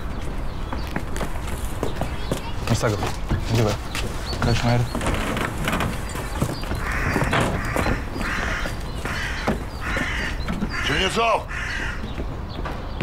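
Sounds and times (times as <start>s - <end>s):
crow cawing: 6.7s - 12.1s.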